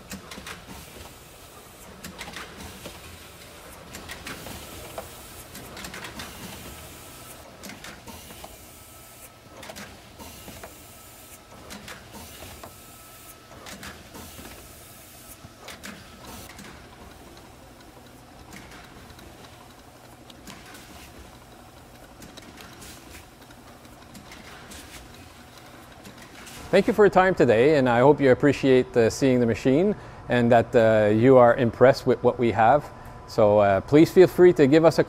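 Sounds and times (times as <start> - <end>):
machine clicks and knocks: 0.0 - 8.6, 9.5 - 10.8, 11.4 - 12.8, 13.5 - 14.7, 15.4 - 26.8
capping machine humming: 0.0 - 35.0.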